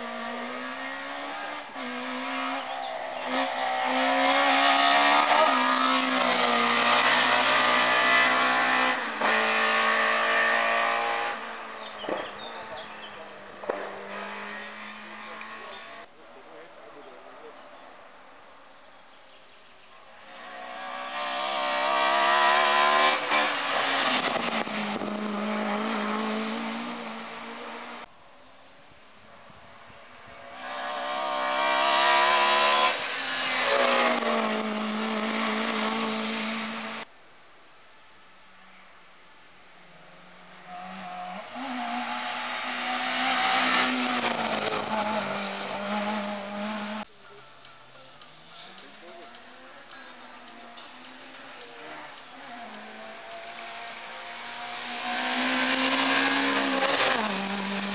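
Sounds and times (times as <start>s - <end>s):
race car engine passing: 0.0s - 16.1s, 20.2s - 28.1s, 30.1s - 37.0s, 40.6s - 47.1s, 50.6s - 57.9s.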